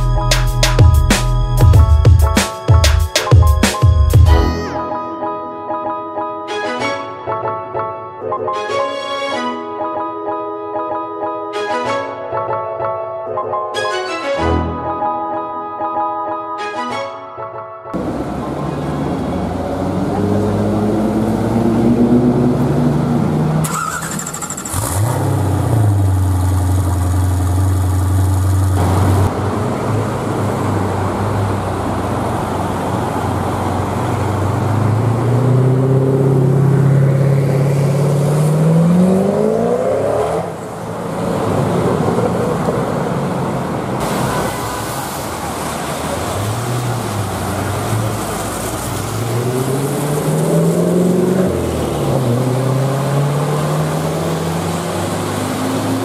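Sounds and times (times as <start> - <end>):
car engines revving: 18.0 - 56.0.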